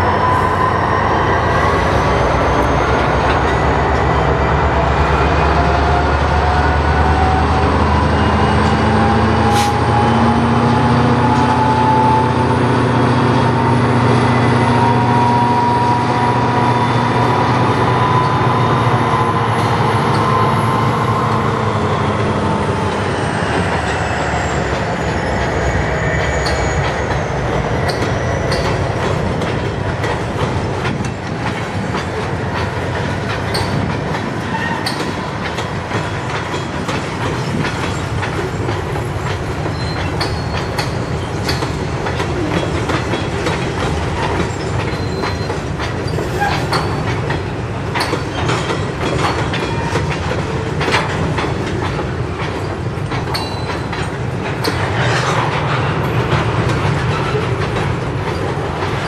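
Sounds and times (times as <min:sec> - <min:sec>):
train wheels clacking over rail joints: 0:01.6 - 0:59.0
high-pitched wheel squeals: 0:23.0 - 0:28.7, 0:44.4 - 0:47.0.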